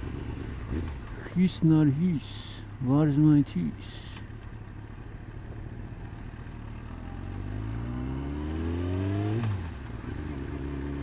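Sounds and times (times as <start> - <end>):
motorcycle engine accelerating: 0.0 - 1.4, 4.5 - 11.0.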